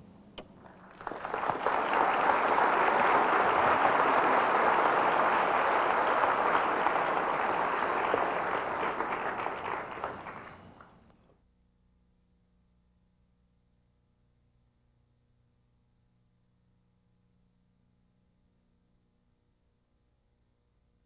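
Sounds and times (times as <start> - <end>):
audience applauding: 0.6 - 11.1.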